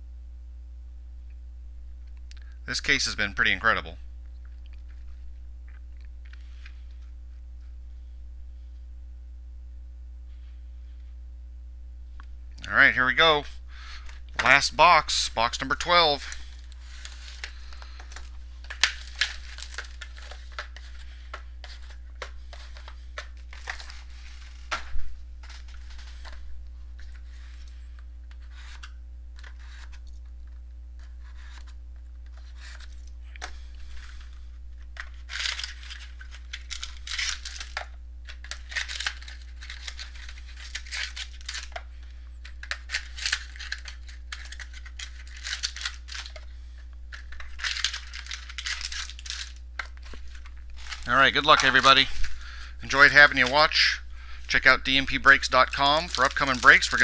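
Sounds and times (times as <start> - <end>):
steady low hum: 0.0 - 57.0
packaging tearing and crinkling: 14.4 - 26.4, 27.0 - 30.3, 31.0 - 57.0.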